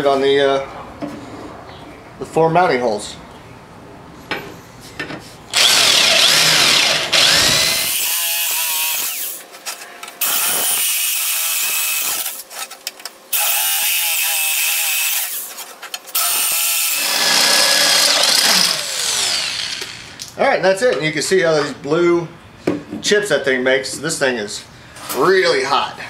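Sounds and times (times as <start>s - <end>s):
electric drill screeching through metal: 5.5s - 9.4s, 10.2s - 12.5s, 13.3s - 20.2s.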